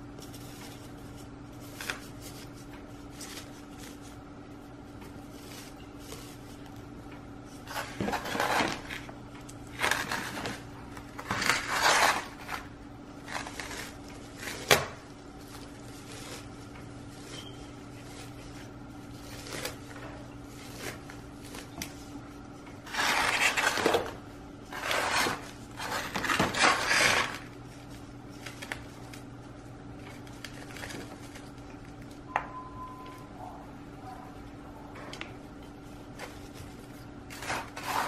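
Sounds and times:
potting mix scraping in a pot: 0:07.5 - 0:09.1, 0:09.7 - 0:14.8, 0:22.8 - 0:27.5, 0:36.1 - 0:38.0.

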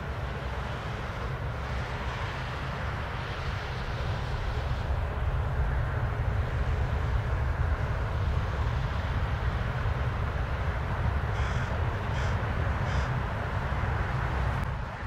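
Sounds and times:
jet engine rumble: 0:00.0 - 0:15.0
crow cawing: 0:11.4 - 0:13.2.

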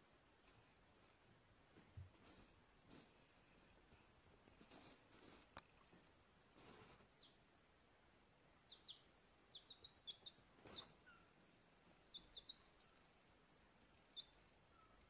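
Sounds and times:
soft rustles: 0:00.4 - 0:07.3, 0:10.5 - 0:11.2
chick peeping: 0:07.2 - 0:07.4, 0:08.6 - 0:11.4, 0:12.0 - 0:13.1, 0:14.0 - 0:15.0.

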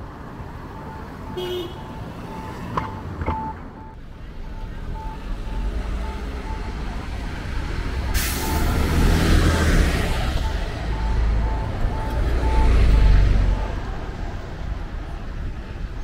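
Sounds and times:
bus engine rumbling: 0:00.0 - 0:16.0
crossing signal beeping: 0:00.6 - 0:14.2
air brakes hissing: 0:08.1 - 0:08.8.

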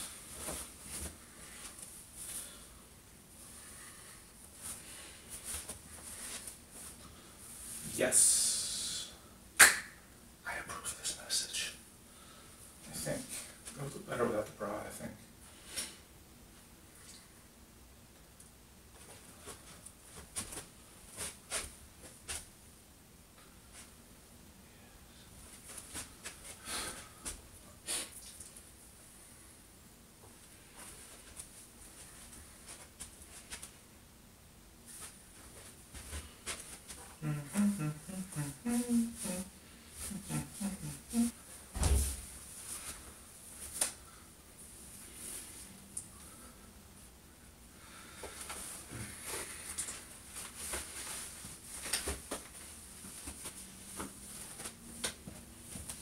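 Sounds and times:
clothing rustling: 0:48.2 - 0:56.0.

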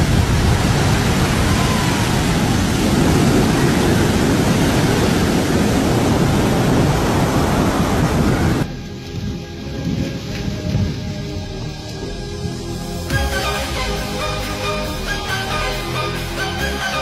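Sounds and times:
ocean waves breaking on rocks: 0:00.0 - 0:11.5.

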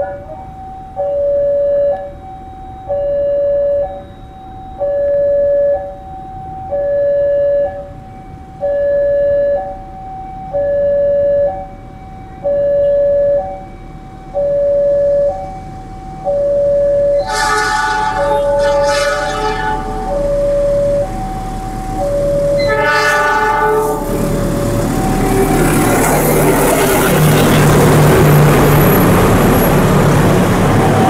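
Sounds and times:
level crossing alarm two tones: 0:00.4 - 0:08.0, 0:12.4 - 0:24.0.

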